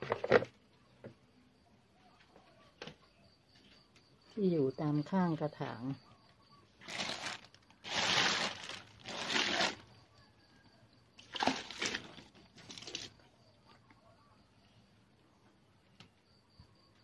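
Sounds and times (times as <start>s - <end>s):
plastic sheeting crinkling: 6.8s - 9.8s.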